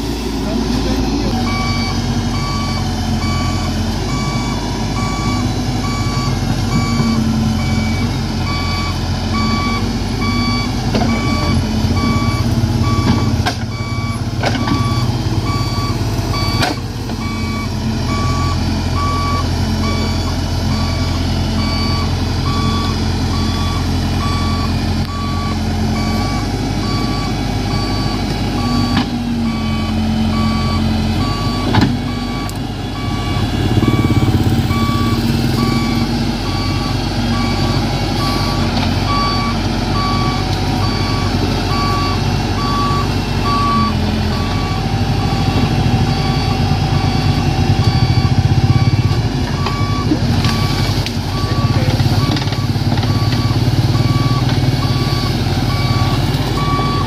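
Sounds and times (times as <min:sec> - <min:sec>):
diesel engine running: 0:00.0 - 0:57.0
backup alarm beeping: 0:01.3 - 0:57.0.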